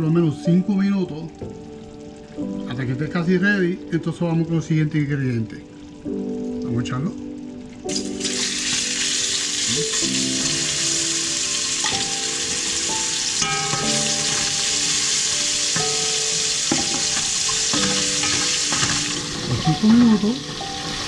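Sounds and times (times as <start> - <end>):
meat sizzling in hot oil: 7.2 - 21.0.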